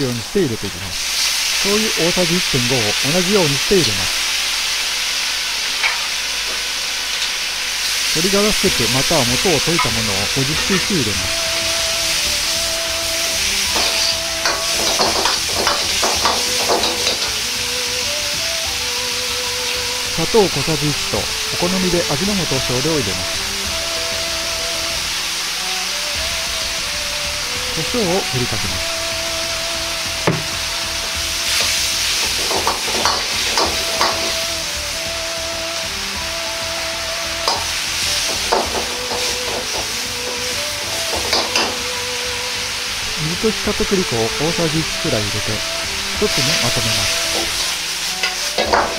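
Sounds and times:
stir-fry sizzling in a wok: 0.0 - 48.9
metal ladle scraping wok: 3.8 - 17.6, 31.4 - 34.7, 37.4 - 41.9, 45.9 - 48.9.

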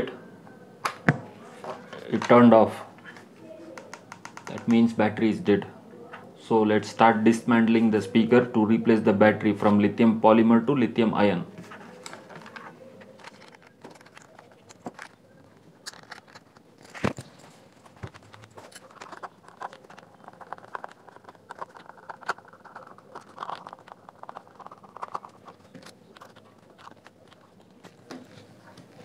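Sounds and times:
screwdriver clicking and scraping plastic: 12.0 - 29.0.

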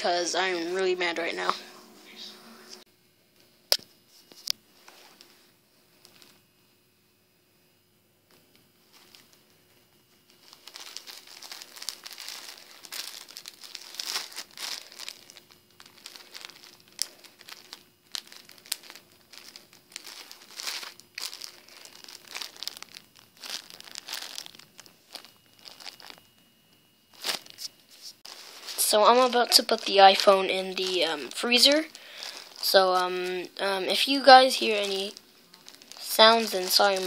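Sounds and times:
plastic bag crinkling: 8.8 - 26.4, 27.1 - 37.0.

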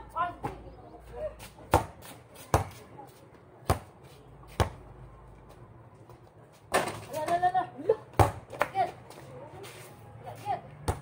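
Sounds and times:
basketball bouncing on concrete: 1.7 - 2.8, 3.6 - 4.8, 8.1 - 9.2.

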